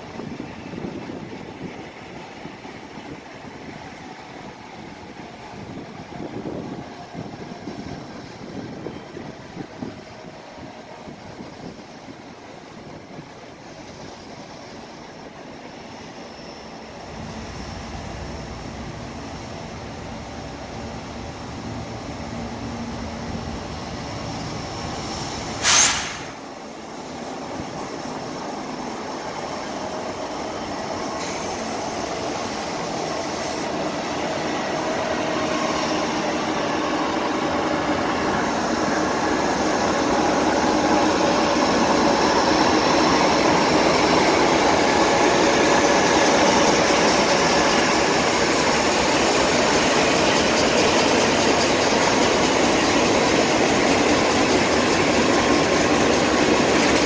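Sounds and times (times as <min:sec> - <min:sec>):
freight train passing: 0:00.0 - 0:57.0
sharp burst of hiss: 0:25.2 - 0:26.5.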